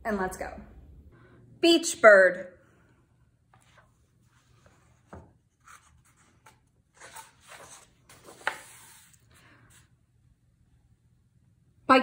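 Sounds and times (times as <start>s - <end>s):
book handling taps and rustles: 4.6s - 9.1s.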